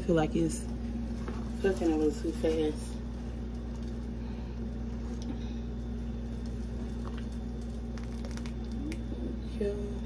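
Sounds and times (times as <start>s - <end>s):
steady low hum: 0.0s - 10.0s
sauce bubbling in a pot: 3.0s - 9.2s.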